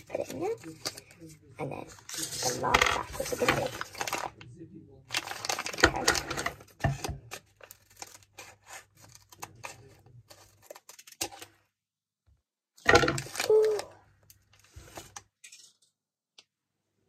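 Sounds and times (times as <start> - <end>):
foil packet crinkling and tearing: 1.9 - 4.5, 5.1 - 11.6, 13.1 - 15.6.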